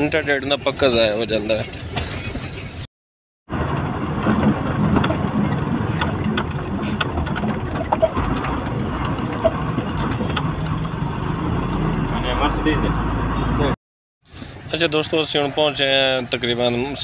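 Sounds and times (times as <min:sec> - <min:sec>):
road noise: 0:00.0 - 0:02.9, 0:03.5 - 0:17.0
truck engine running: 0:03.5 - 0:16.8.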